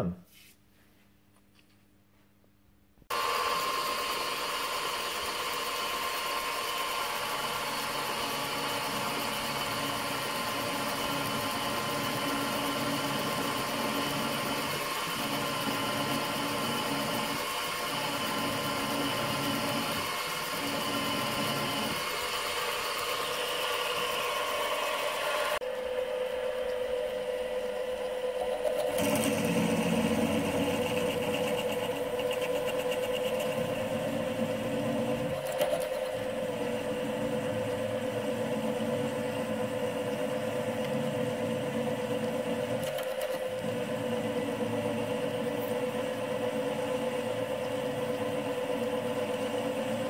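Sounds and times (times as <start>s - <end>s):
drill cutting metal: 3.1s - 25.6s, 28.3s - 38.0s
mill motor humming: 3.1s - 50.0s.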